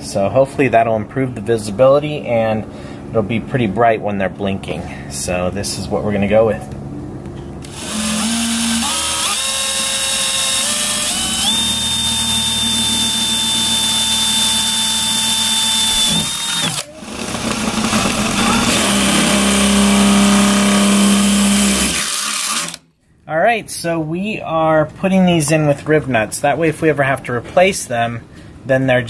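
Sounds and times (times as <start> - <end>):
cordless drill boring into metal: 7.6 - 22.8.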